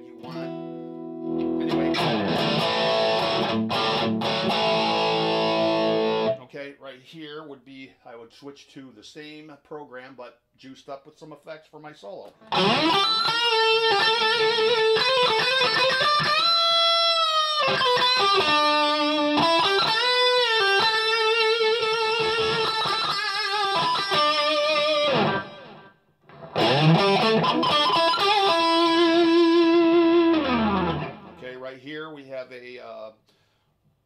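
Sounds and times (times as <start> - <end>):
overdriven electric guitar solo: 0.0 - 6.4, 12.4 - 31.4.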